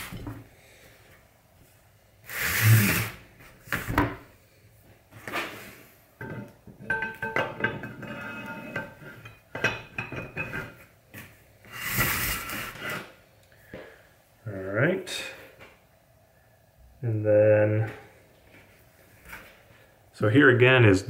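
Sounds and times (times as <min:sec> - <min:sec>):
metal parts clunking and scraping: 0:06.2 - 0:10.8
metal bars ringing as they slide: 0:06.3 - 0:09.5.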